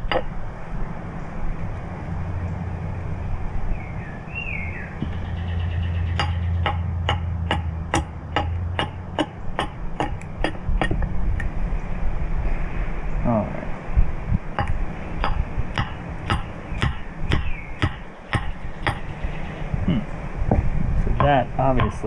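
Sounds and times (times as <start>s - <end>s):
steady low hum: 0.0s - 22.0s
axe chopping wood: 6.2s - 11.0s, 14.6s - 19.0s.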